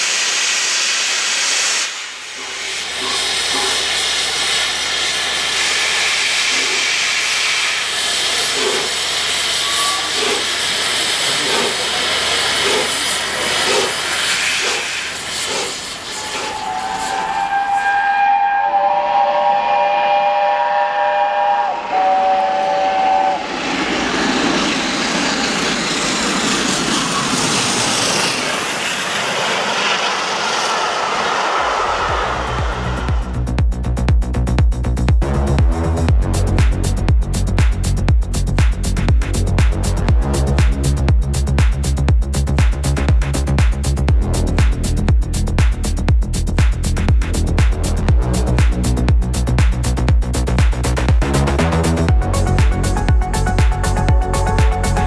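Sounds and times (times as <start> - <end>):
steam hissing from locomotive: 0.0 - 33.5
train rushing past: 0.0 - 55.0
locomotive exhaust beats: 2.4 - 27.8, 31.6 - 55.0
steam whistle chord: 8.6 - 11.7, 16.0 - 23.8, 51.5 - 55.0.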